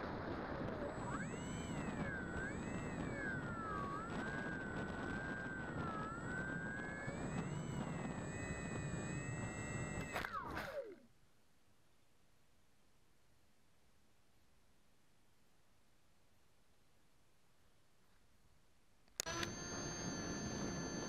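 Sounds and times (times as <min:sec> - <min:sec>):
model plane motor whining: 0:00.0 - 0:11.1, 0:19.2 - 0:21.0.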